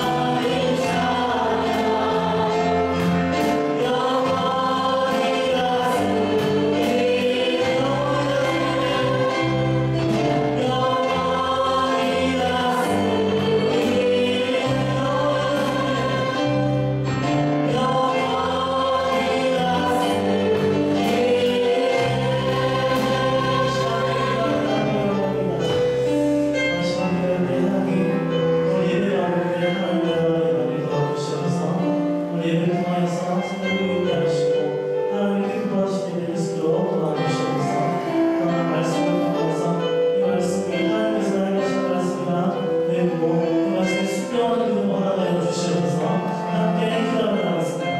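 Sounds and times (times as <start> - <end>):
people singing into microphones: 0.0 - 34.6
instrumental backing music: 0.0 - 47.9.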